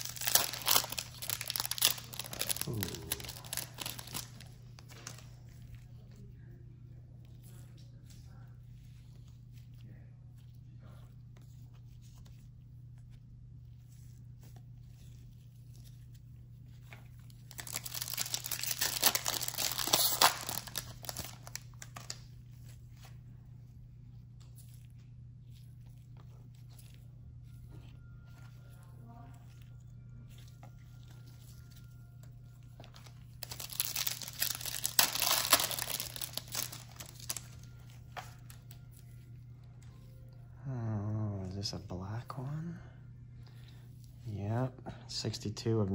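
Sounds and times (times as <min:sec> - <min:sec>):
foil wrapper tearing and crinkling: 0:00.0 - 0:05.4, 0:17.1 - 0:22.3, 0:31.0 - 0:38.9.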